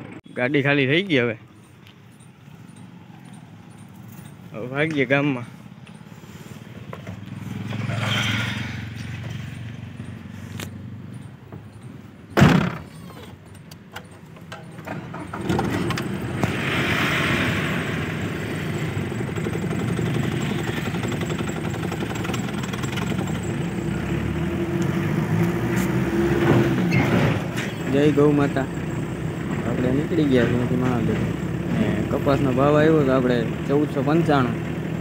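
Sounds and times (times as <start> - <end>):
diesel truck engine running: 0.0 - 12.7, 13.6 - 35.0
loud short thud: 12.4 - 12.9.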